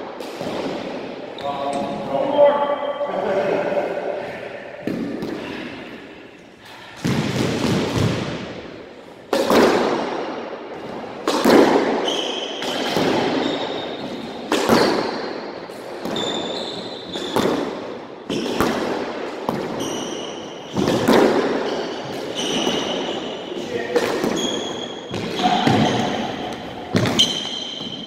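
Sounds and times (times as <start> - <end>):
squash ball cracks: 0.0 - 1.2, 9.2 - 16.5, 17.1 - 19.8, 20.7 - 23.0, 23.9 - 28.0
sneakers squeaking on wooden floor: 12.0 - 15.2, 16.0 - 17.7, 19.5 - 28.0.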